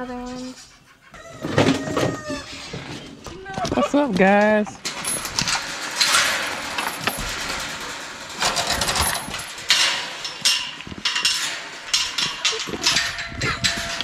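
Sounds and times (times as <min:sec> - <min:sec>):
metal chain rattling and clinking: 0:03.8 - 0:14.0.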